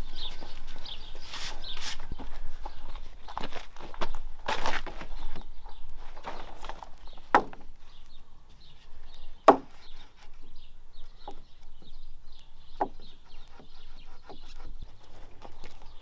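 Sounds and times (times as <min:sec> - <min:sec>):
wooden boards knocking together: 0:06.2 - 0:07.7, 0:09.4 - 0:09.8.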